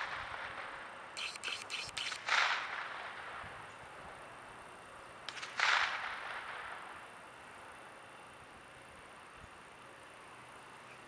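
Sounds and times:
fishing reel clicks: 1.2 - 2.3.

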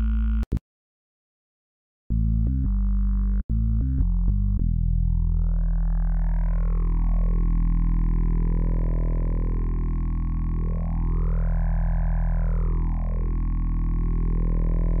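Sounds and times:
synthesizer drone: 5.2 - 15.0.

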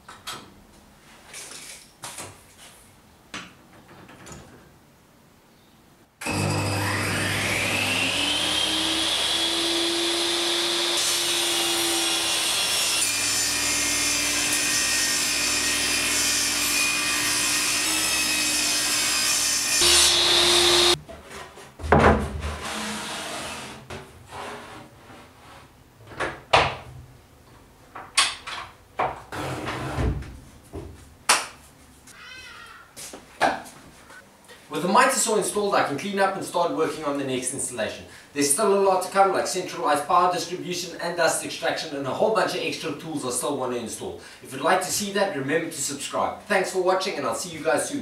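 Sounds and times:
table saw cutting wood: 6.2 - 21.0, 22.5 - 23.8.

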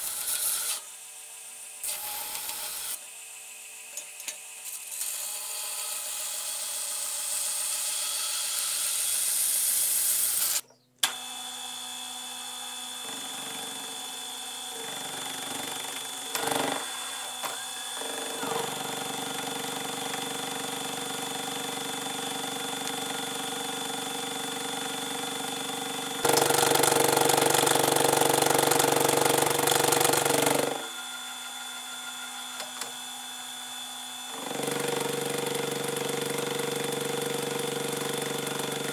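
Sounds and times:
milling machine cutting metal: 12.8 - 38.9
belt grinder grinding metal: 26.1 - 33.2, 34.3 - 38.9.

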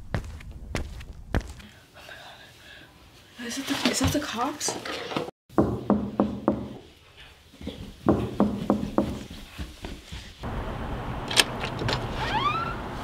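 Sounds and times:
footsteps on carpeted stairs: 0.0 - 1.7, 7.5 - 10.4.

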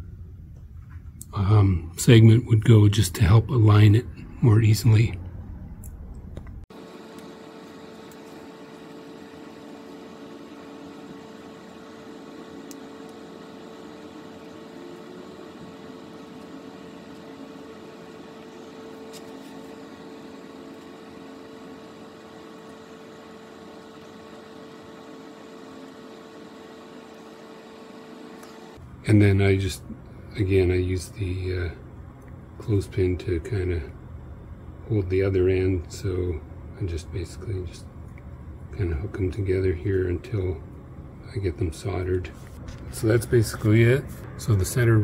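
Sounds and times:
steady machine hum: 0.0 - 45.0.

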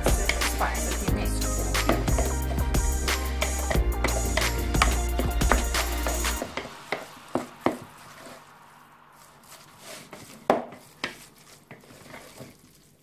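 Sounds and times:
spoon stirring food in bowl: 0.0 - 8.4, 9.4 - 13.0
background music: 0.0 - 9.3.

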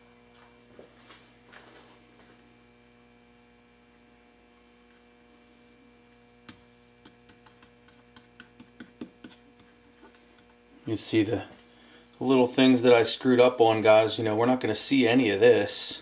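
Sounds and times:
low electrical hum: 0.0 - 16.0
hands tapping on plastic film: 6.4 - 10.5.

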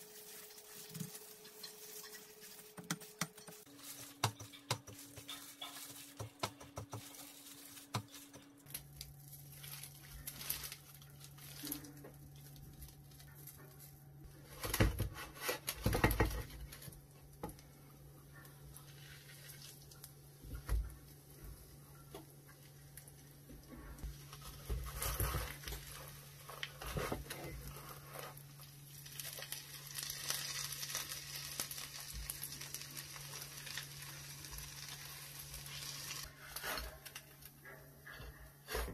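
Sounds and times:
food sizzling in a pan: 0.0 - 4.1, 28.0 - 36.3.

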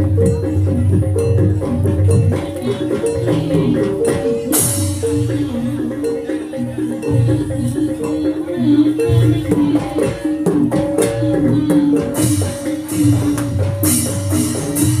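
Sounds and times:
tuned metal percussion melody: 0.0 - 15.0.

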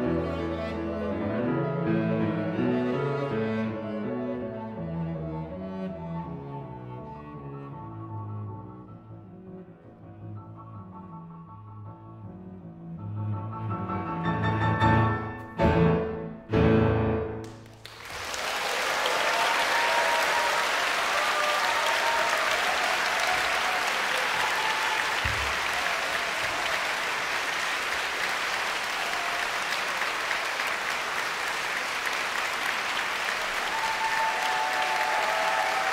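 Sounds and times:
audience applauding: 17.4 - 35.9.

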